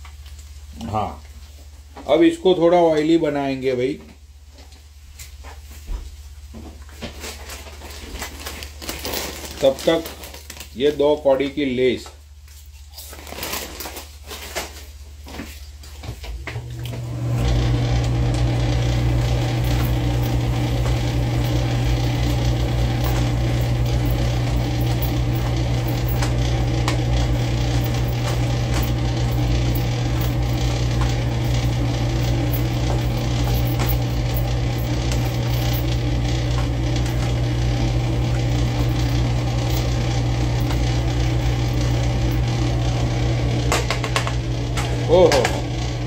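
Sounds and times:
kitchen appliance electric hum: 0.0s - 46.0s
foil bag crinkling: 6.8s - 16.0s
potato chips crunching: 7.3s - 11.0s, 12.5s - 15.0s.

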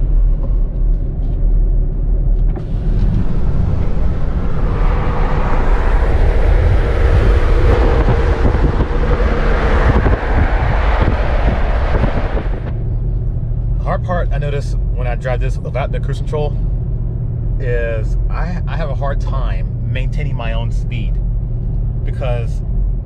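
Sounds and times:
road noise at highway speed: 0.0s - 23.0s
wind rush: 2.5s - 13.8s.

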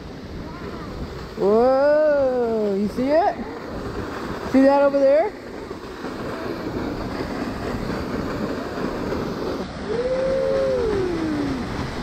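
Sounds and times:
waterfall roaring: 0.0s - 12.0s
person making a falling ooh: 9.8s - 11.7s.

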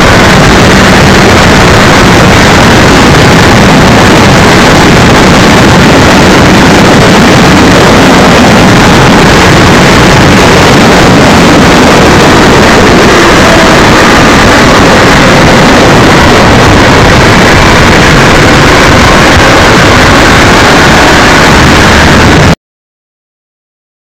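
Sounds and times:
distorted wind rush: 0.0s - 22.6s.

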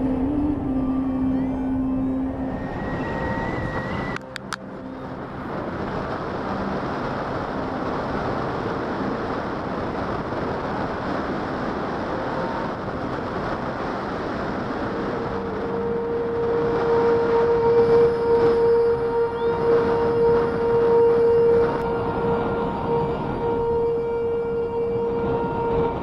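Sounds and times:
wind rushing over microphone: 0.0s - 26.0s.

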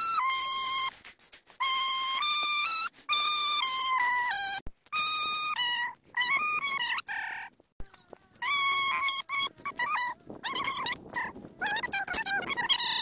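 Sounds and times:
person singing in nasal voice: 7.8s - 13.0s.

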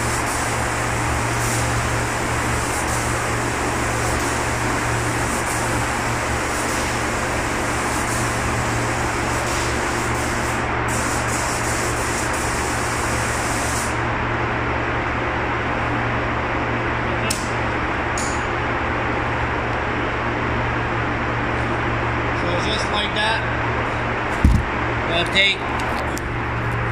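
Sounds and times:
spray gun hissing: 0.0s - 14.0s
ventilation fans droning: 0.0s - 26.9s.

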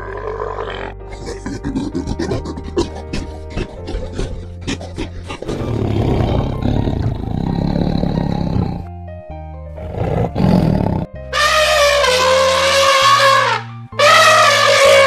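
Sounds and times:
elephant trumpeting: 0.0s - 7.3s, 11.3s - 15.0s
tiger roaring: 0.0s - 8.9s, 9.8s - 11.2s
background music: 0.0s - 15.0s.

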